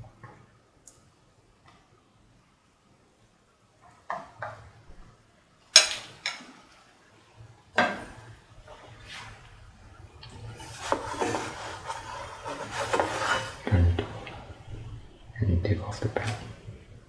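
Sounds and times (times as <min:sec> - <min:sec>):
metal kitchenware clattering: 0:05.8 - 0:06.6.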